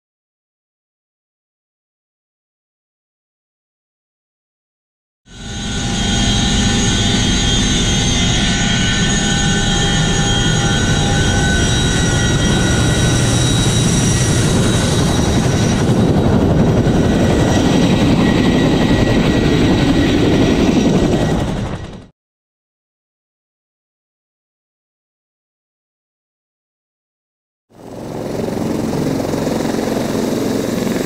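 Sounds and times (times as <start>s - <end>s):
helicopter rotor noise: 5.3s - 22.1s, 27.7s - 31.0s
helicopter turbine whine: 5.3s - 22.1s, 27.7s - 31.0s.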